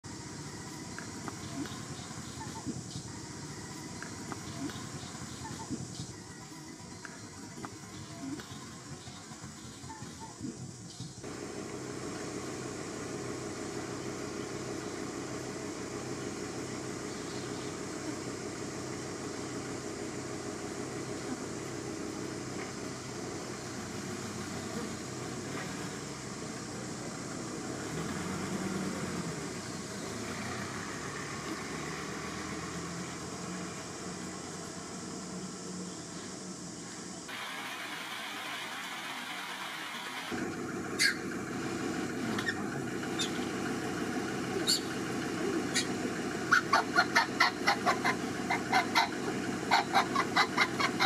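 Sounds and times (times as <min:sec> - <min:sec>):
macaque squeaky cries: 0:41.0 - 0:41.3, 0:42.3 - 0:42.6, 0:44.6 - 0:44.9, 0:45.6 - 0:51.0.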